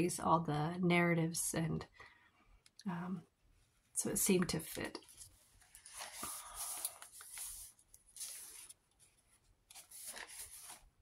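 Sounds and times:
paper pages rustling: 0:04.7 - 0:11.0.

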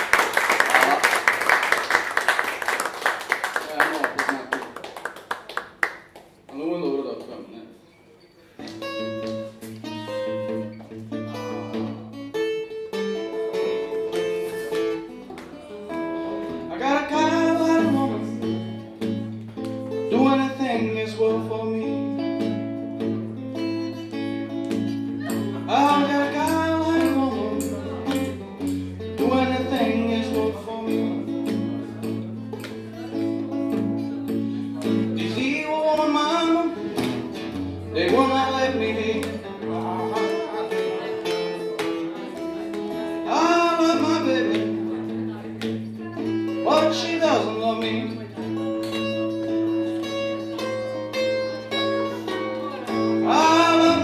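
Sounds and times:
acoustic guitar: 0:00.0 - 0:03.5, 0:08.0 - 0:54.0
man singing into a microphone: 0:16.7 - 0:18.5, 0:20.1 - 0:22.1, 0:25.7 - 0:28.3, 0:29.2 - 0:31.4, 0:34.8 - 0:36.9, 0:37.9 - 0:40.6, 0:43.2 - 0:44.9, 0:46.6 - 0:48.2, 0:52.9 - 0:54.0.

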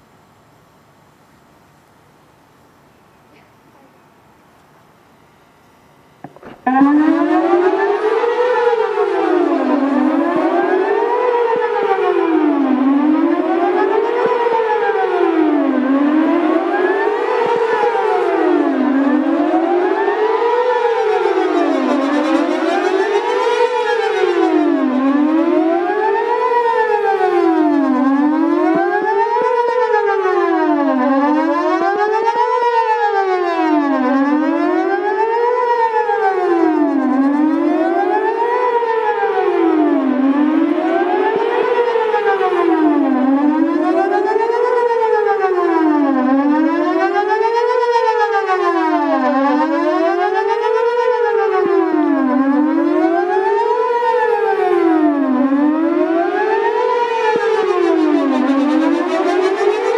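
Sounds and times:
warning siren rising and falling: 0:06.3 - 0:59.9.

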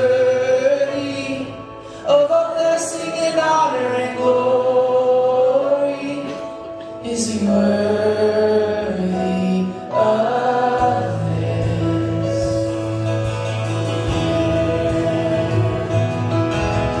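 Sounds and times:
band with guitars: 0:00.0 - 0:17.0
voices singing held notes: 0:07.0 - 0:17.0.

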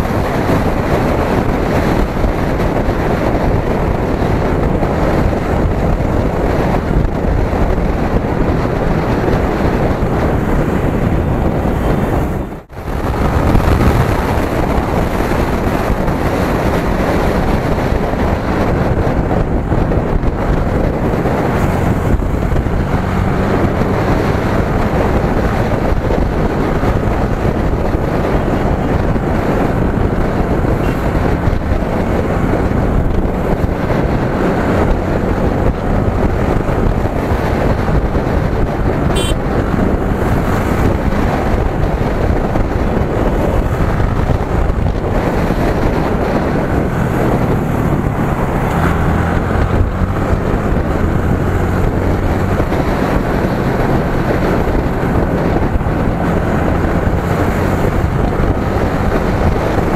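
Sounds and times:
motorcycle engine: 0:00.0 - 0:59.9
wind rushing over microphone: 0:00.0 - 0:59.9.

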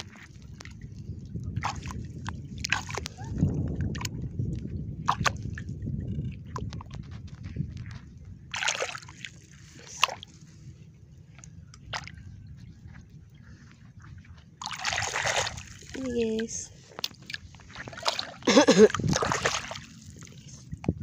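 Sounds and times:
water and mud sloshing: 0:00.0 - 0:21.0
sharp splashes: 0:08.5 - 0:10.2, 0:14.6 - 0:16.1, 0:17.1 - 0:20.3.

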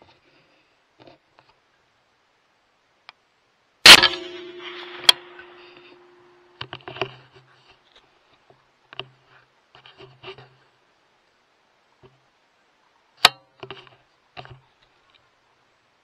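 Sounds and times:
rifle shot echo: 0:03.8 - 0:06.6
sharp click: 0:03.9 - 0:06.8.

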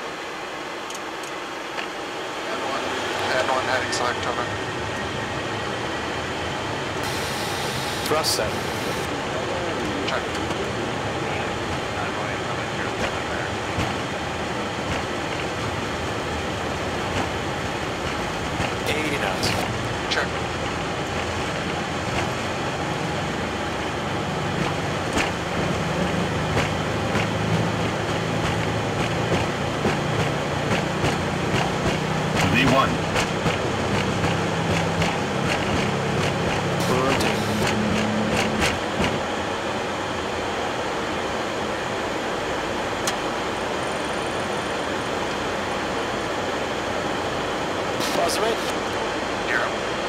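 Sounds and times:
jet engines and wheels rumbling: 0:00.0 - 0:50.0
airflow: 0:07.0 - 0:10.0.

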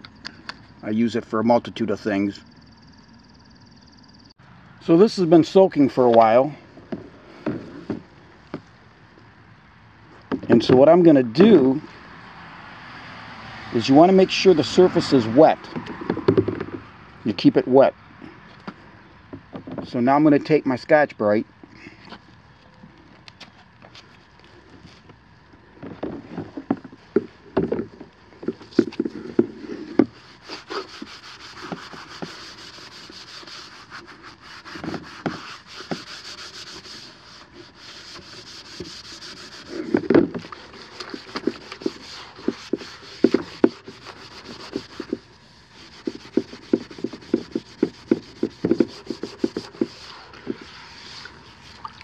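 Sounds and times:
scour pad scrubbing wet plate: 0:30.1 - 0:51.8.

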